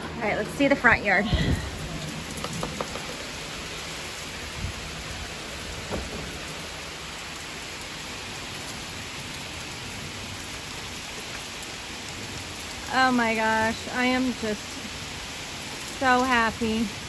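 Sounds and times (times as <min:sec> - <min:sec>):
steady rain falling: 0:00.0 - 0:17.0
small knocks: 0:02.4 - 0:03.3.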